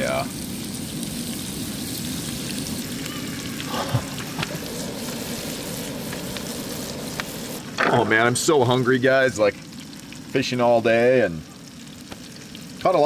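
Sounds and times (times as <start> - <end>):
mushrooms sizzling in butter: 0.0 - 13.0.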